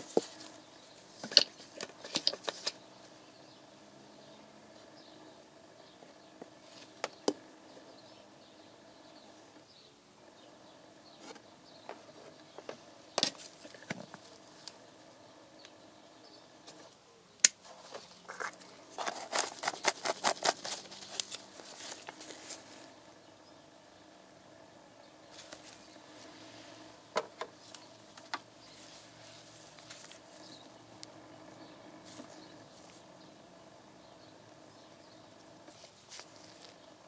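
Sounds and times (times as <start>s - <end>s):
faint steady hum: 0.0s - 37.0s.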